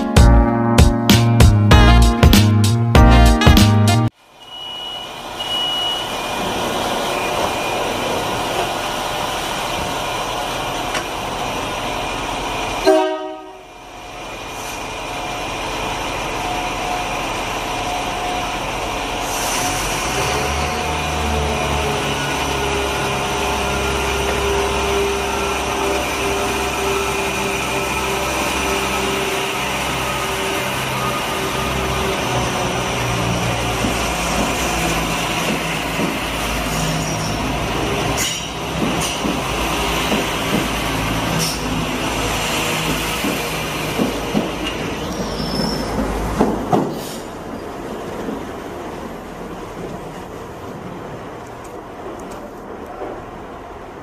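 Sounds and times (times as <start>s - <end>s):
diesel train engines humming: 2.7s - 54.0s
diesel engines rumbling: 4.2s - 54.0s
train horn toot: 12.8s - 13.7s.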